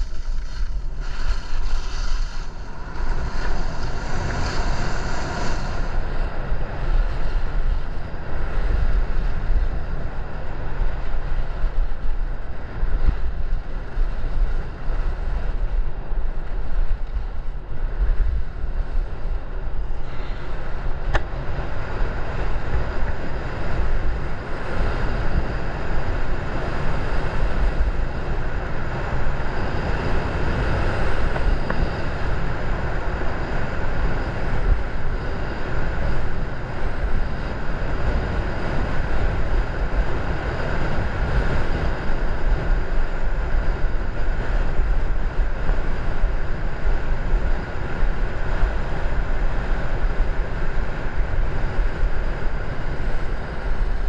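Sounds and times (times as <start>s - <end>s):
skis sliding on snow: 0.0s - 7.9s
wind buffeting microphone: 0.0s - 54.0s.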